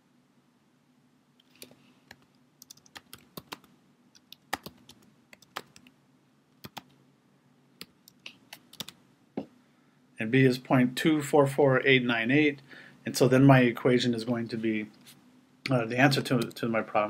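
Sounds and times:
keyboard typing: 1.4 - 5.9, 6.6 - 7.0, 7.8 - 9.0.

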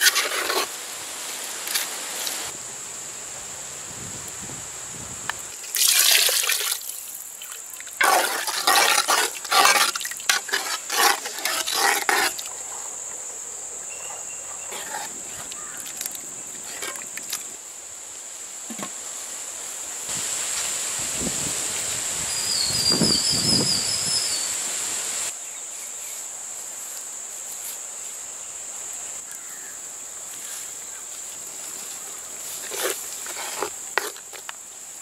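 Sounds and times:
coconut milk pouring and splashing: 5.6 - 12.2
ladle stirring curry: 8.0 - 12.4, 14.6 - 15.1, 16.7 - 17.0, 32.6 - 34.2.

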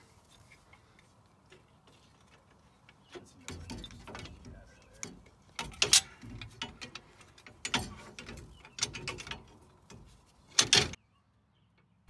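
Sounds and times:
steel leaf springs clinking: 2.5 - 11.0.

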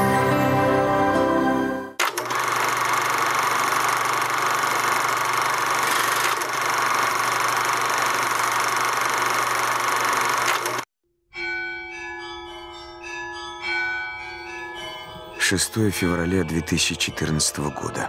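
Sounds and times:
music: 0.0 - 2.0, 11.0 - 18.0
mechanical running clatter: 2.0 - 10.9.

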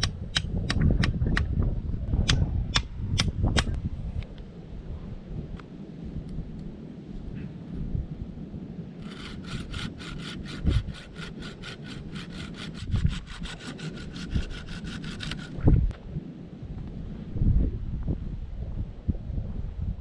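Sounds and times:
saw rasping through wood: 9.0 - 15.6.

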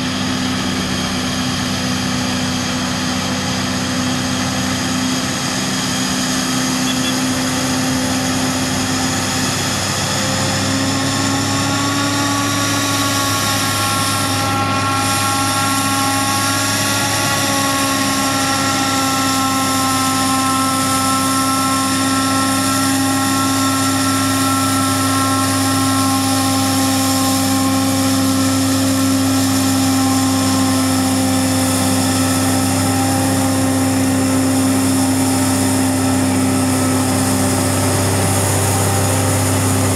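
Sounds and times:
heavy engine drone: 0.0 - 39.9
high machine whine: 0.0 - 39.9.

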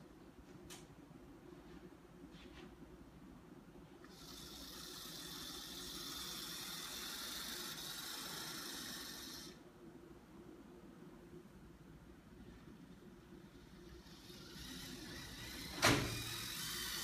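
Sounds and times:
model train motor whirring: 4.0 - 9.6, 13.4 - 17.0.

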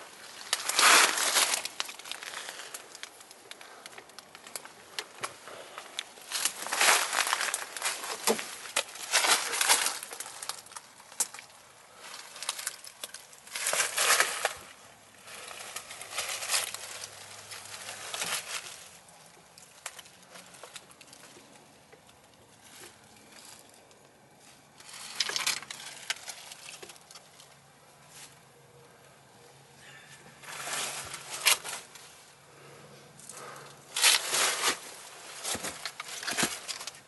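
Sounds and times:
dry leaves crunching underfoot: 0.0 - 21.0, 24.4 - 28.4, 30.4 - 32.2, 33.4 - 37.0
small crackles: 0.0 - 29.1, 30.4 - 37.0.

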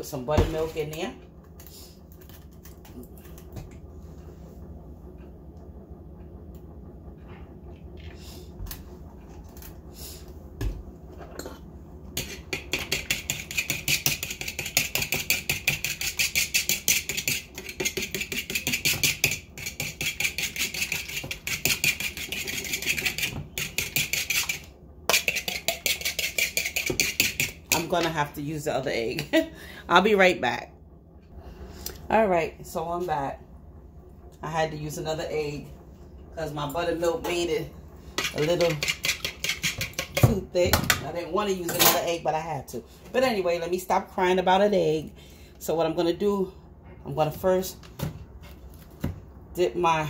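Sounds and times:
fork beating in wooden bowl: 12.2 - 27.8.

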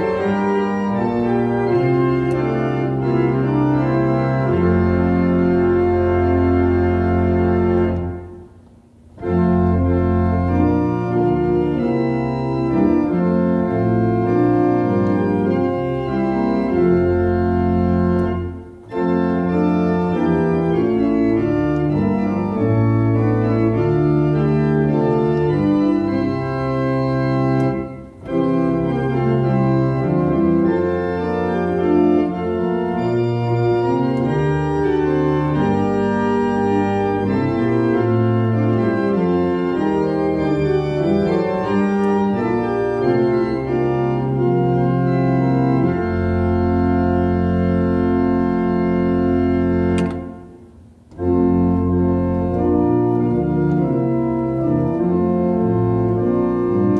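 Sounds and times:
church organ playing a hymn: 0.0 - 56.9.

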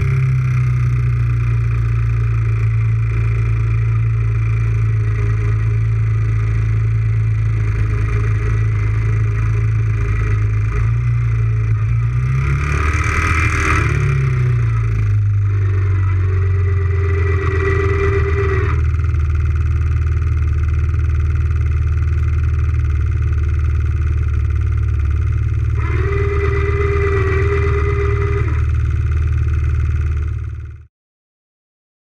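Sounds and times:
atv engine idling: 0.0 - 30.8
electric winch whining: 1.9 - 21.0, 23.4 - 30.4.

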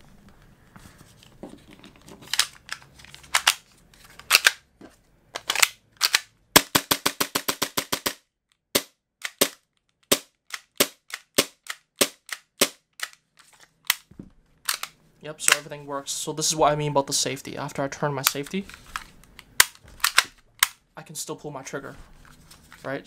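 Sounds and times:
pistol mechanism clicks: 2.3 - 3.6, 5.4 - 6.9, 9.2 - 13.2, 13.8 - 15.6, 19.3 - 20.8.

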